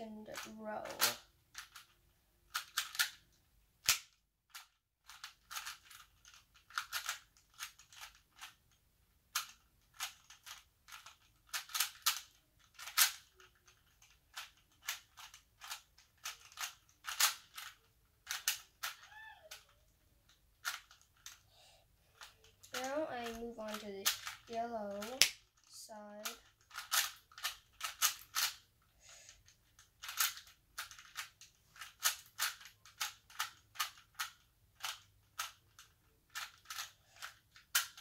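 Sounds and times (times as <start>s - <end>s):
puzzle cube layers clicking: 0.3s - 19.8s, 20.6s - 21.4s, 22.2s - 28.7s, 29.3s - 38.0s.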